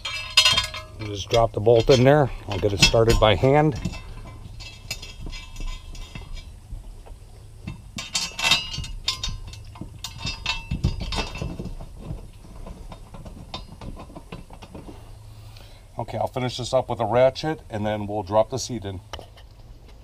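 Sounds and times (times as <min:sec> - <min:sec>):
metallic clicks and clinks: 0:00.0 - 0:06.6, 0:07.6 - 0:11.8
metal clanks: 0:00.0 - 0:15.4.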